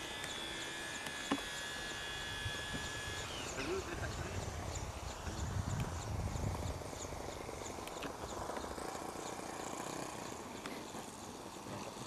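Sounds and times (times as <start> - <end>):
buzz of flapping model aircraft: 0.0 - 12.0
wind rumbling on microphone: 3.9 - 8.6.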